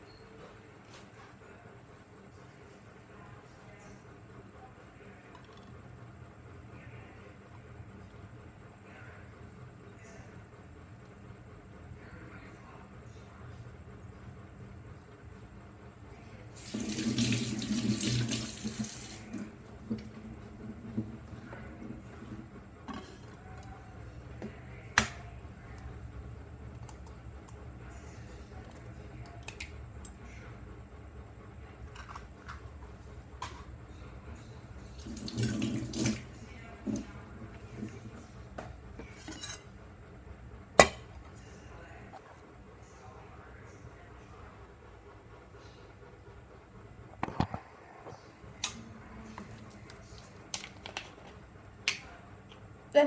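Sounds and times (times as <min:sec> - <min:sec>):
steady low hum: 0:00.6 - 0:53.0
egg knocked against metal bowl: 0:40.8 - 0:41.1.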